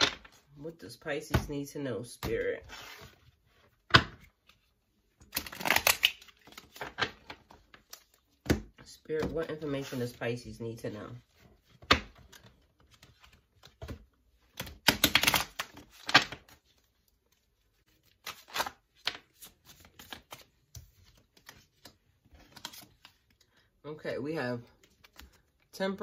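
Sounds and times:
cards shuffling: 5.3 - 8.5, 11.7 - 23.4, 24.7 - 25.6.

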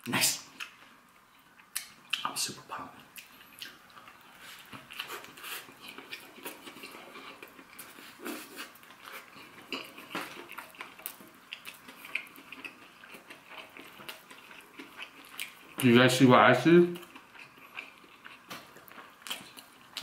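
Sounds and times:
mouth chewing clicks and smacks: 1.6 - 2.4, 3.0 - 7.9, 8.8 - 15.9.

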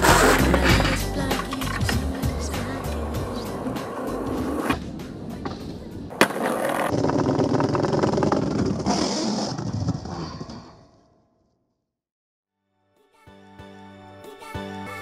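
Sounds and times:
skateboard slapping ground: 0.0 - 10.3
skateboard wheels rolling on paving: 0.0 - 10.8.

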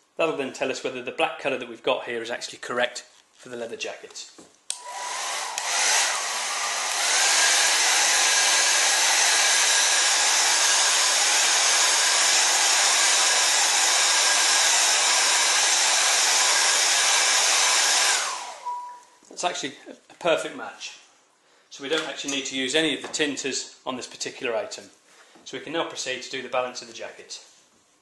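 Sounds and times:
hairdryer blowing: 4.7 - 19.0.

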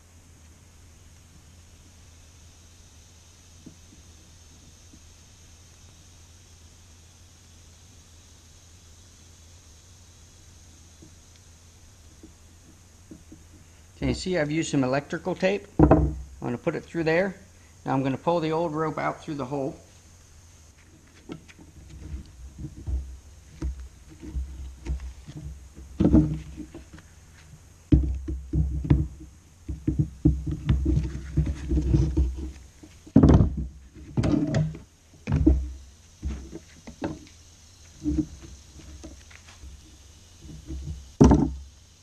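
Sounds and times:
tool knocks and clicks: 15.8 - 16.2, 27.9 - 37.2, 40.5 - 41.6
rubbing and scraping: 20.8 - 27.5, 29.8 - 41.1.

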